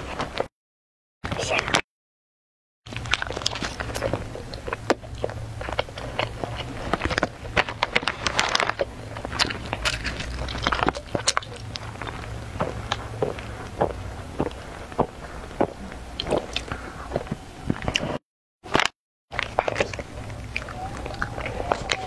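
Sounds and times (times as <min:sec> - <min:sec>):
plastic wrappers crinkling: 0:02.9 - 0:13.8
close-up chewing: 0:02.9 - 0:22.0.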